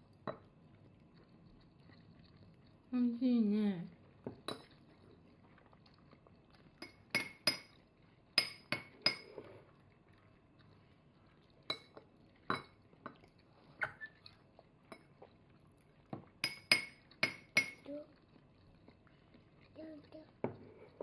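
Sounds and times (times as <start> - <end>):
spoon and fork clinking on dishes: 4.3 - 4.8, 6.8 - 7.8, 8.4 - 9.6, 11.7 - 13.2, 16.4 - 17.9.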